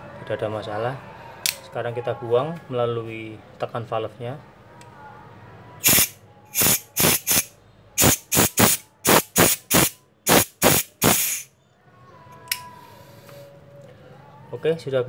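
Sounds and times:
gas hissing from magazine: 0:05.8 - 0:11.5.

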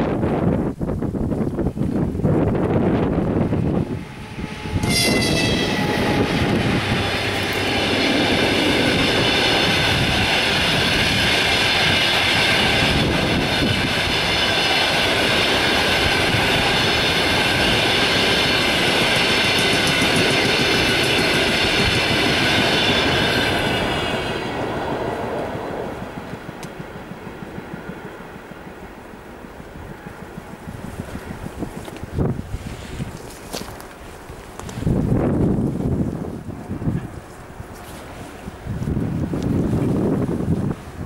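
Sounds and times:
train wheels rumbling on rail: 0:00.0 - 0:41.0
high ringing: 0:03.8 - 0:12.8.

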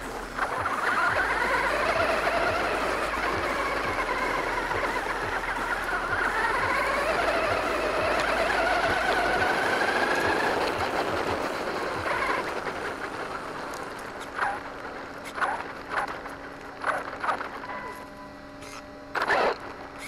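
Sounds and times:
toy truck motor whine: 0:00.0 - 0:20.0
tyres on gravel: 0:00.0 - 0:20.0.

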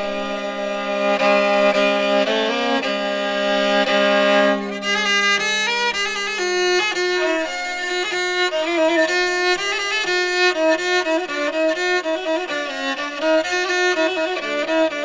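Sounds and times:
fast instrumental melody: 0:00.4 - 0:15.0.

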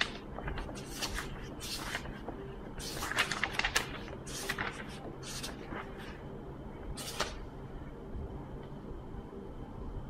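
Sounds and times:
paper rustling and snapping: 0:00.0 - 0:05.9
book pages turning: 0:00.0 - 0:06.2, 0:06.9 - 0:07.4.

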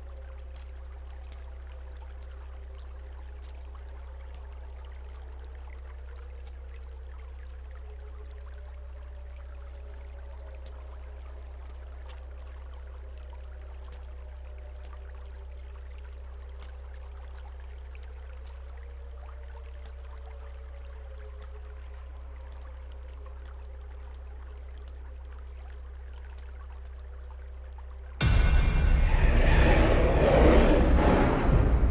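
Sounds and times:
low drone: 0:28.2 - 0:31.9.

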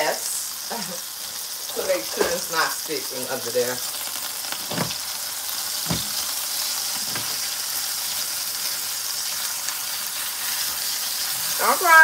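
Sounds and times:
chicken frying in oil: 0:00.0 - 0:12.0
soft knocks: 0:05.9 - 0:06.2.

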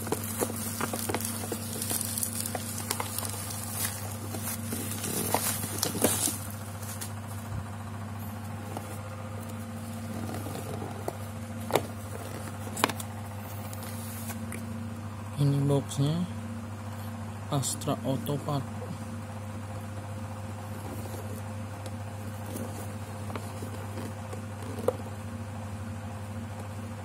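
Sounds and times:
cardboard box handling: 0:00.0 - 0:07.2, 0:08.5 - 0:14.5, 0:20.7 - 0:25.1
plastic packaging crackling: 0:00.0 - 0:07.2
steady low hum: 0:00.0 - 0:27.0.

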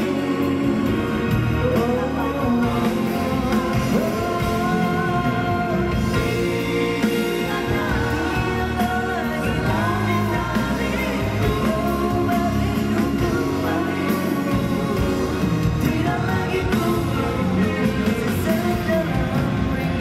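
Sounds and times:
instrumental backing: 0:00.0 - 0:20.0
man singing pop song: 0:00.0 - 0:20.0.

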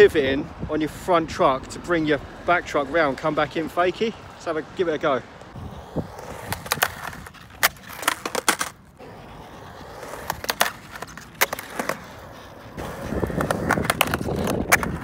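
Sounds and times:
skateboard rolling on concrete: 0:00.0 - 0:15.0
skateboard trucks clacking on coping: 0:05.5 - 0:15.0.

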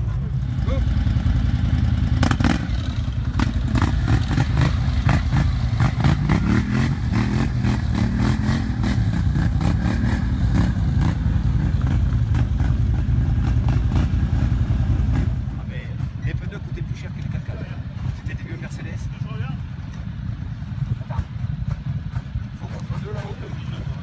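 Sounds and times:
atv engine revving: 0:00.0 - 0:18.2.

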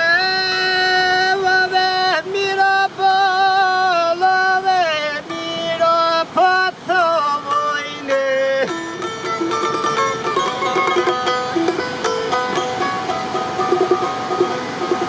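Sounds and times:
person singing folk melody: 0:00.0 - 0:15.0
faint steady drone: 0:05.2 - 0:15.0.

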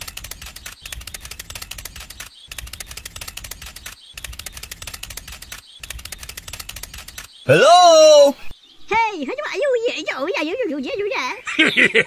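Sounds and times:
rapid clattering clicks: 0:00.0 - 0:07.4.

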